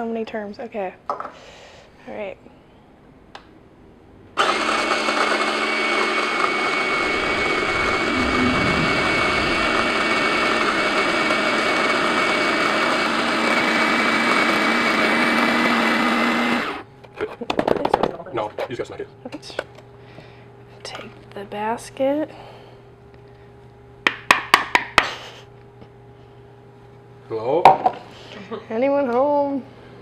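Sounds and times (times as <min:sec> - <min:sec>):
electric coffee grinder grinding: 0:04.4 - 0:08.4, 0:09.2 - 0:16.9.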